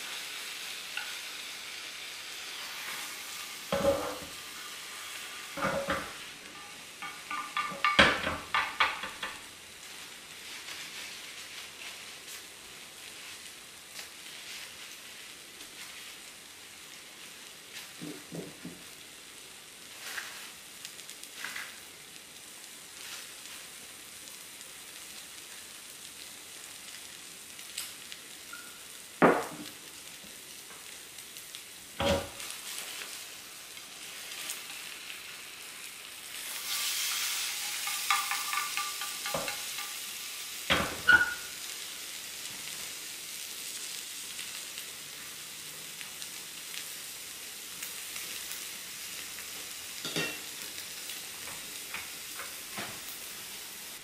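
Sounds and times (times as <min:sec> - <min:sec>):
egg sizzling in a pan: 0:00.0 - 0:54.0
chopsticks clicking on pan: 0:37.1 - 0:40.1.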